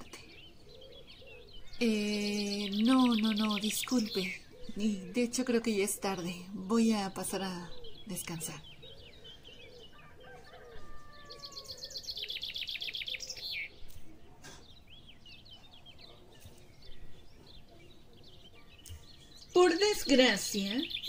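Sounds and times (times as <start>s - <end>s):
birds chirping: 0.0s - 21.0s
fast bird trill: 18.8s - 21.0s.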